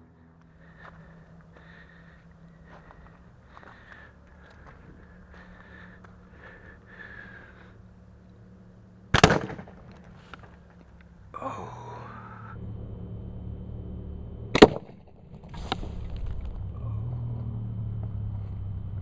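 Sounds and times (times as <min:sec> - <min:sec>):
sharp bangs: 0:09.1 - 0:10.8, 0:14.5 - 0:16.0.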